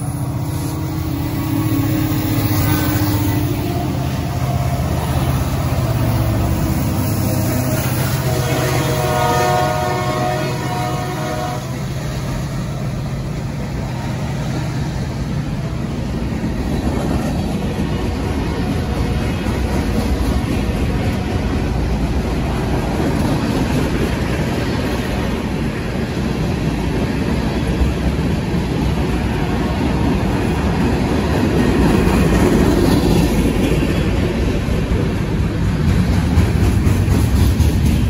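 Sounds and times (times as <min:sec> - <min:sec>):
multi-tone locomotive horn: 0:00.0 - 0:12.0
diesel locomotives rumbling past: 0:00.0 - 0:38.0
rail cars rolling on rails: 0:00.0 - 0:38.0.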